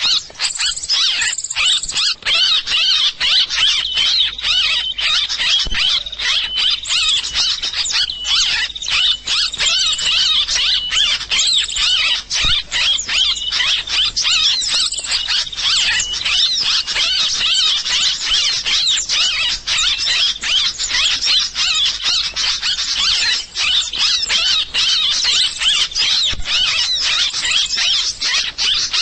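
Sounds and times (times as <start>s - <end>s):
rapid high bird chirps: 0.0s - 29.0s.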